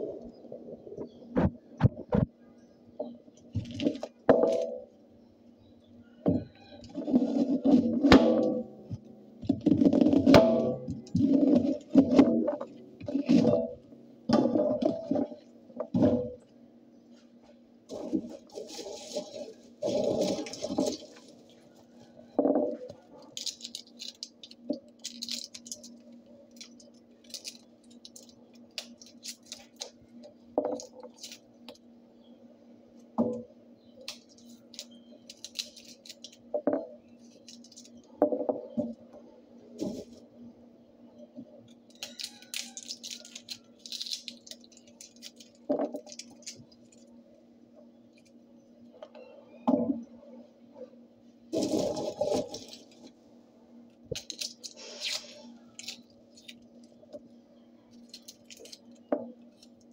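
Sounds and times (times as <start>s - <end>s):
scratchy scrubbing: 18.0s - 21.4s.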